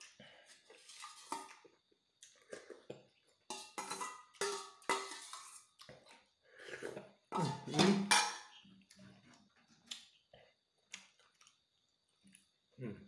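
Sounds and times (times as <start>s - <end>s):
metal ladle scraping a metal bowl: 0.8s - 1.5s, 3.5s - 5.6s.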